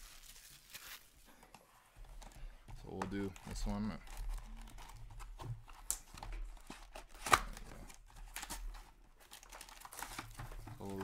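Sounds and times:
foil wrapper crinkling: 0:00.0 - 0:01.3
loud foil crackle: 0:00.0 - 0:01.3.

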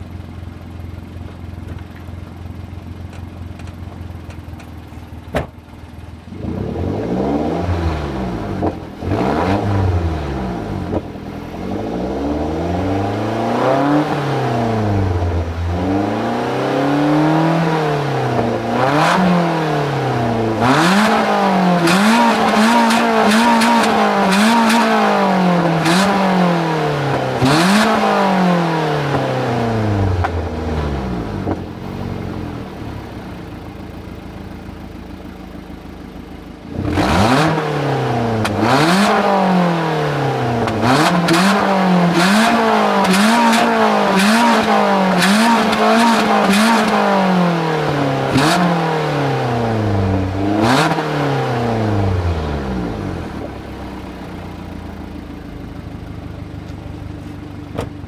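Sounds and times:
car engine revving raspy exhaust: 0:06.3 - 0:32.6, 0:36.6 - 0:55.1.

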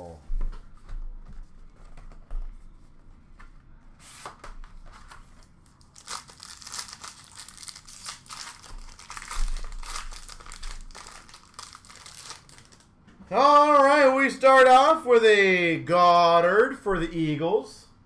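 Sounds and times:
plastic wrap crinkling and tearing: 0:05.0 - 0:12.9.

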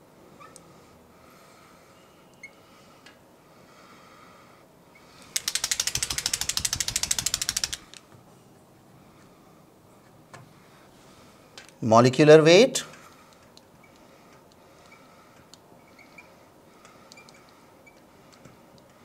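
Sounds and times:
marker rattling across glass: 0:05.2 - 0:08.0.

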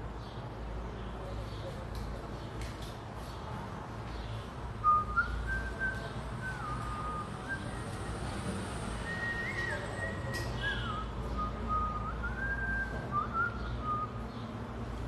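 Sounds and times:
person whistling a tune: 0:04.8 - 0:14.2.

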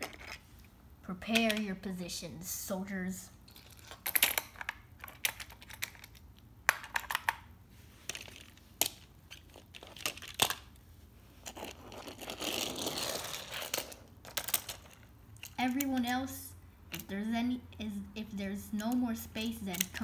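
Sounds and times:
toy car scraping along floorboards: 0:11.5 - 0:14.0
toy cars clicking and tapping: 0:13.4 - 0:16.3, 0:18.7 - 0:20.0.

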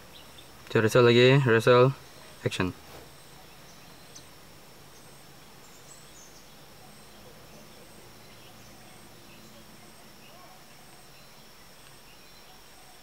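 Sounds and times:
high insect drone: 0:00.0 - 0:13.0.

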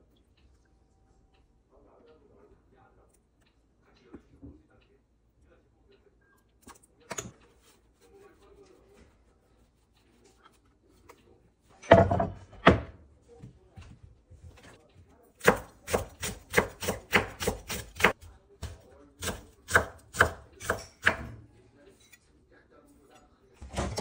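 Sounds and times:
knife chopping on wooden board: 0:15.4 - 0:21.4.

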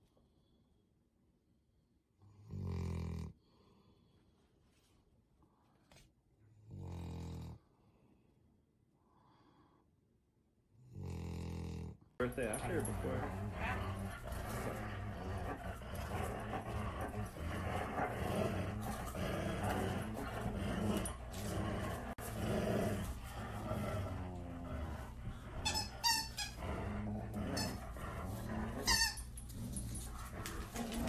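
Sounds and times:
dogs growling: 0:10.9 - 0:31.0
high-pitched squeaks: 0:25.5 - 0:26.6, 0:28.5 - 0:31.0.

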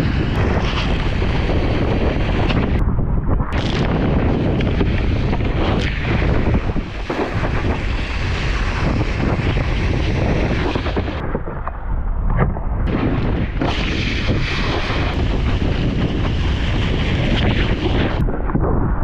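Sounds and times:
wind buffeting microphone: 0:00.0 - 0:19.0
water spray off wakeboard: 0:13.6 - 0:18.1.

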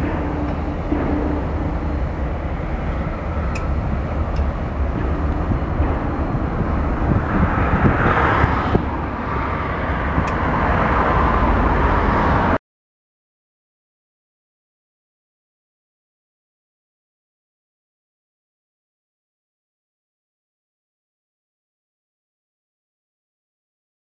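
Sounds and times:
outdoor rumble and hiss: 0:00.0 - 0:12.6.

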